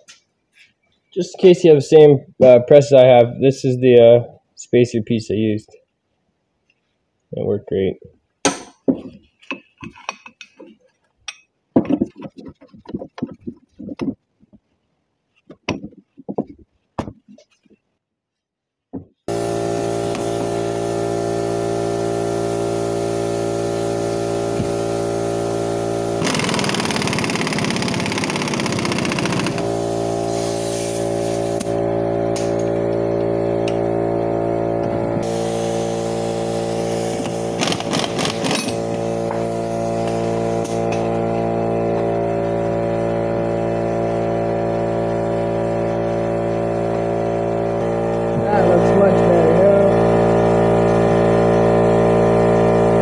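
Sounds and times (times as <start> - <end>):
loud steady tonal hum: 19.3 - 26.6, 29.2 - 37.6, 38.5 - 53.0.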